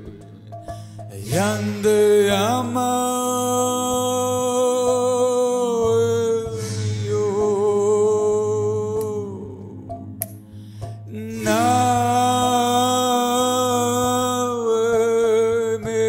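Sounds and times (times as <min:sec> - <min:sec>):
low drone: 0:00.0 - 0:16.0
person chanting: 0:01.1 - 0:10.0, 0:11.1 - 0:16.0.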